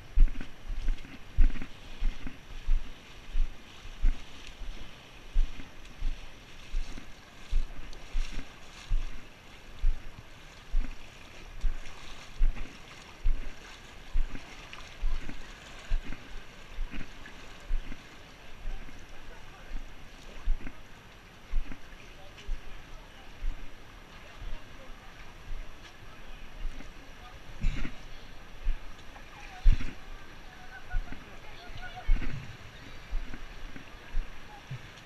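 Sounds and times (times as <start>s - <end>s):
footsteps wading through water: 0.0s - 35.0s
hiss of moving water: 0.0s - 35.0s.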